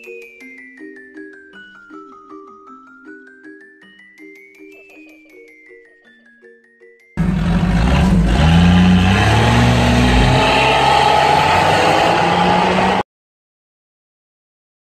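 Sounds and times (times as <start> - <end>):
tyre and road noise: 7.2 - 13.0
vehicle engine accelerating: 7.2 - 13.0.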